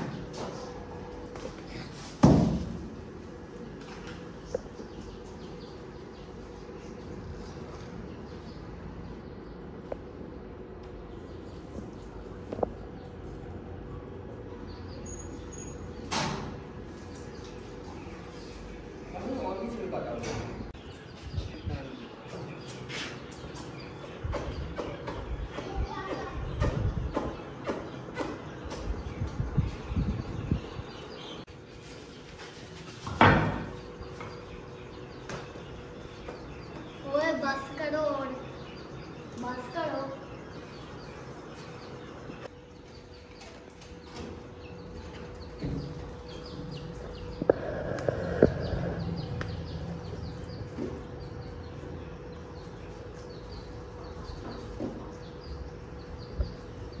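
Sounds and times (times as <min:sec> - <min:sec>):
small birds chirping: 0:00.0 - 0:57.0
faint steady hum: 0:44.6 - 0:57.0.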